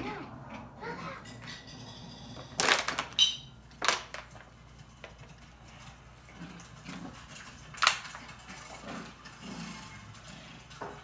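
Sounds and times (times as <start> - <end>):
plastic bottle crinkling: 2.6 - 4.4.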